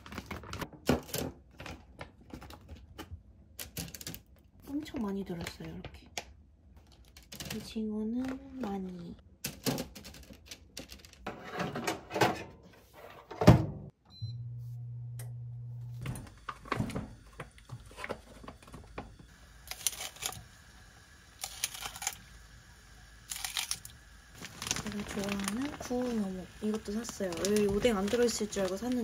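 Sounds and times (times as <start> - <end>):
plastic packaging rustling: 0.0 - 3.0, 19.7 - 20.5, 21.3 - 22.3, 23.2 - 29.0
short beep: 14.1 - 14.6
frozen food poured into pot: 19.6 - 22.4, 23.2 - 29.0.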